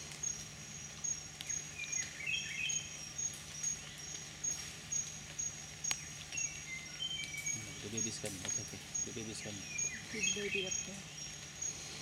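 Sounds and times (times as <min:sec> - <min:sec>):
insect trilling: 0:02.6 - 0:12.0
whistled bird notes: 0:06.4 - 0:11.4.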